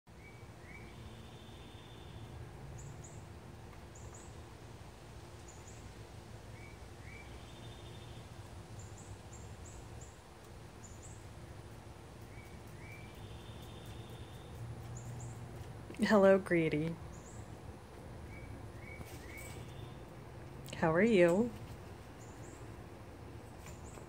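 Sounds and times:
small songbirds singing: 0:00.1 - 0:04.6, 0:05.4 - 0:20.1, 0:22.1 - 0:24.0
steady low hum: 0:00.1 - 0:24.0
high thin bird chirps: 0:12.2 - 0:15.4, 0:18.3 - 0:20.0.

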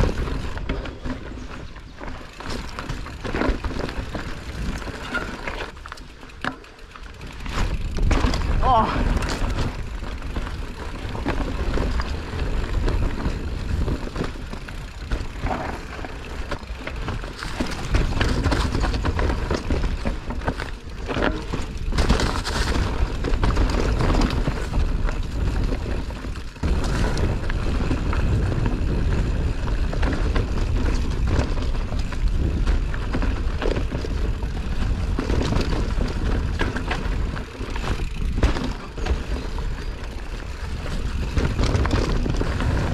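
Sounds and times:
bike clattering over bumps: 0:00.0 - 0:42.9
wind and rolling tyres rumble: 0:00.0 - 0:42.9.

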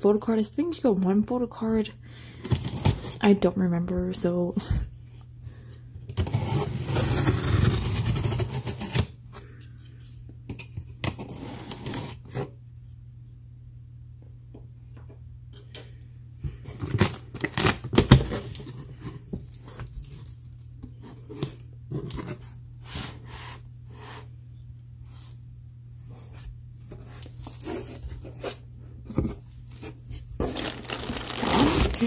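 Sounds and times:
packing tape ripping on cardboard: 0:02.4 - 0:03.2, 0:06.1 - 0:09.2, 0:11.0 - 0:12.5, 0:16.7 - 0:20.6, 0:30.4 - 0:32.0.

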